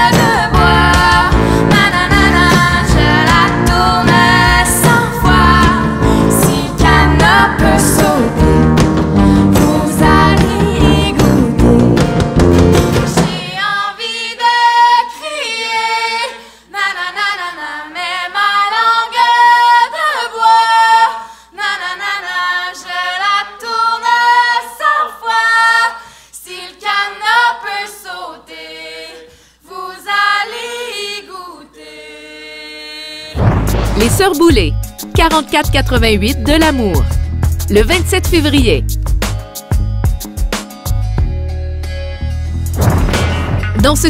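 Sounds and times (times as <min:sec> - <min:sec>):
women singing in harmony: 0:00.0 - 0:08.6, 0:09.2 - 0:11.8, 0:13.1 - 0:33.4
band with bass and drums: 0:00.0 - 0:13.4, 0:33.4 - 0:44.0.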